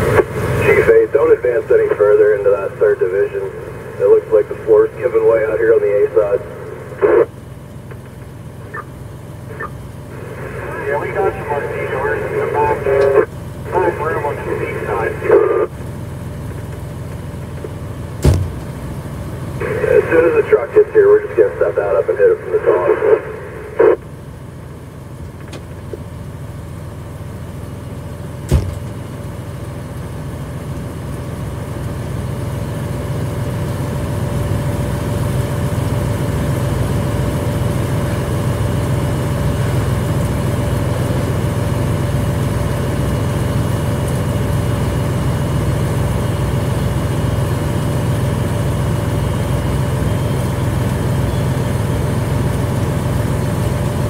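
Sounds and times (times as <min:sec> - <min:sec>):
fire engine motor running: 0:00.0 - 0:54.0
sharp knock: 0:18.2 - 0:18.6.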